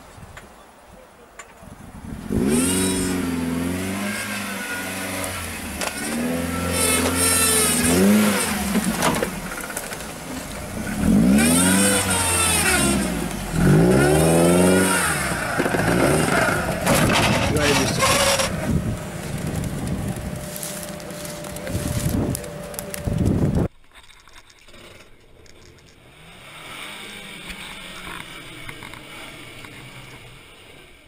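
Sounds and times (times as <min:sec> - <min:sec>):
engine revving hard: 0:02.2 - 0:08.8, 0:10.9 - 0:18.7, 0:26.1 - 0:30.4.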